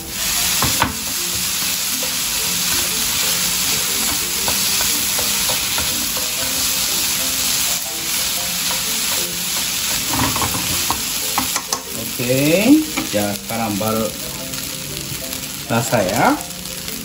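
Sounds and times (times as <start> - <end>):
vegetables sizzling in a frying pan: 0.0 - 17.0
chopsticks clicking against a pan: 11.3 - 11.9.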